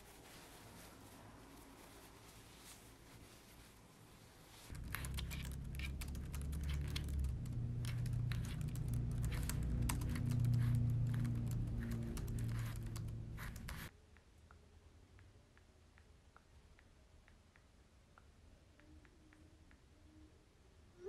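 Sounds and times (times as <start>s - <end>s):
rapid laptop typing: 4.7s - 13.9s.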